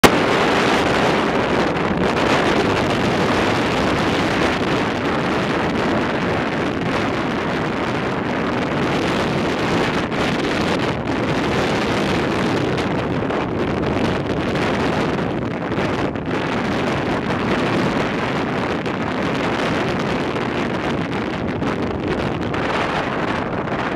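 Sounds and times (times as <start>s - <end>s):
ocean surf breaking: 0.0s - 14.6s
wind buffeting microphone: 0.0s - 23.9s.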